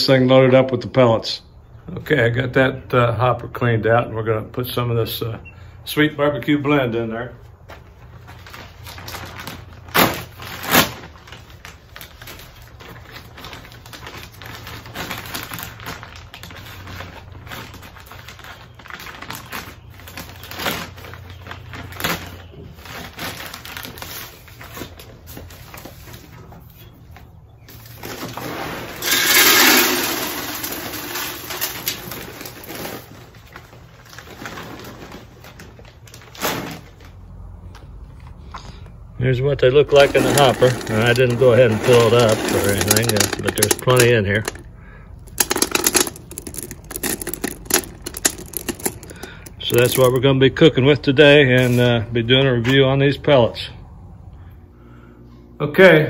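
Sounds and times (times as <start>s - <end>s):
plastic bag rustling: 7.5s - 26.9s, 27.7s - 37.2s, 39.9s - 50.4s
wood pellets pouring: 28.5s - 32.8s, 39.9s - 44.6s, 45.3s - 50.2s.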